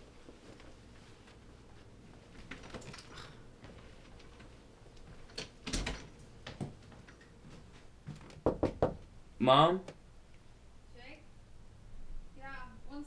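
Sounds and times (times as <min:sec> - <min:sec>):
footsteps: 0:06.4 - 0:08.4.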